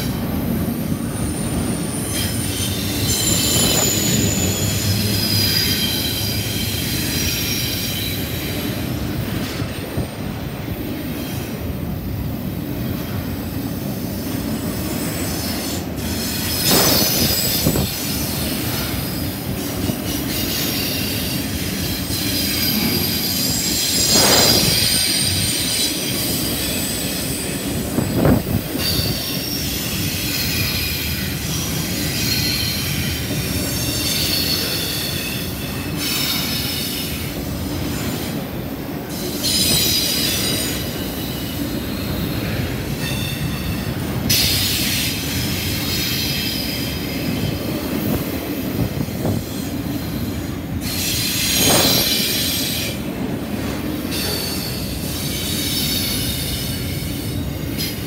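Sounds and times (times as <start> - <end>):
train wheels rumbling on rail: 0.0 - 58.0
wheel squeal: 1.2 - 8.7.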